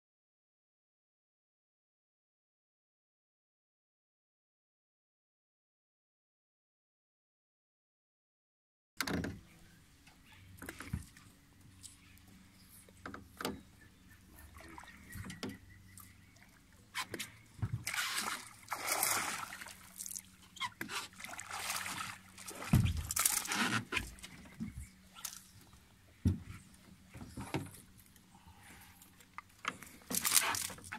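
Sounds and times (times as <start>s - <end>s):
fish splashing at water surface: 17.8s - 23.7s.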